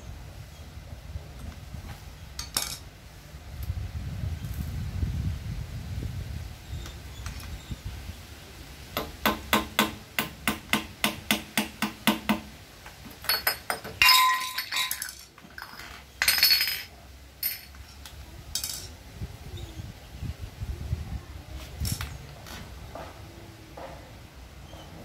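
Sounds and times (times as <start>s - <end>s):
metal parts clinking and clattering: 2.4s - 2.8s, 13.1s - 18.9s
hammer tapping on metal: 9.0s - 12.5s.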